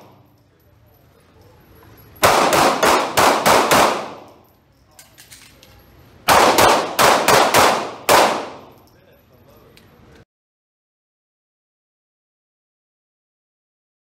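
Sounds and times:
pistol shots echoing indoors: 0.0 - 0.4, 1.9 - 8.9.

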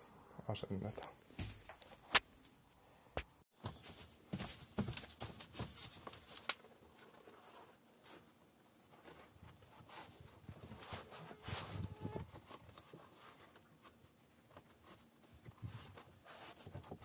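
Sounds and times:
cork sheet rustling and scraping: 3.6 - 17.0.

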